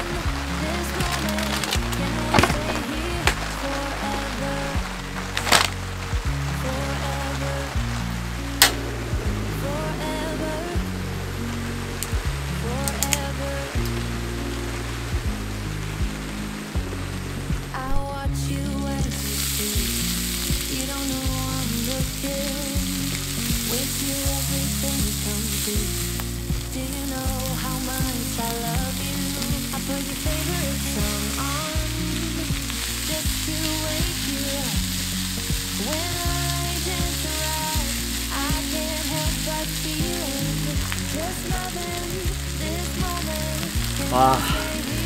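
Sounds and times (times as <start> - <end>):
background music with bass line: 0.0 - 45.0
food sizzling in a pan: 19.1 - 45.0.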